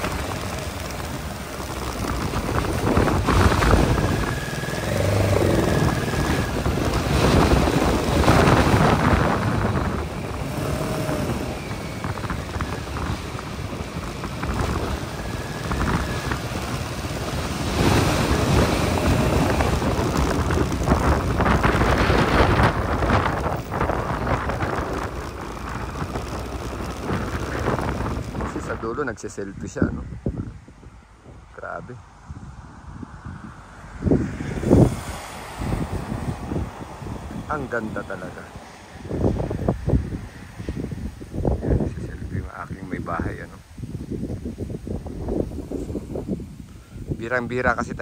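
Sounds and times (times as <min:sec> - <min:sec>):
motorcycle running: 0:00.0 - 0:29.1, 0:35.9 - 0:40.9
wet road noise: 0:00.0 - 0:29.3, 0:30.0 - 0:48.0
wind rushing over microphone: 0:00.0 - 0:48.0.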